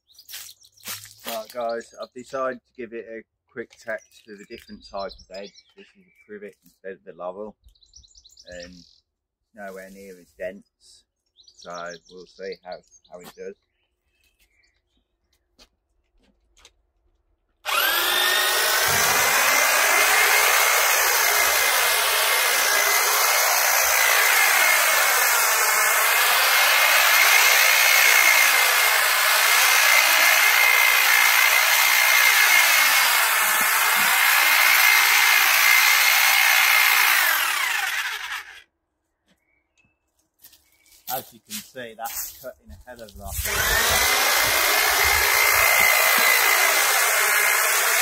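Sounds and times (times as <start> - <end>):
hedge trimmer cutting hedge: 1.2 - 1.7, 17.6 - 38.6, 43.0 - 48.0.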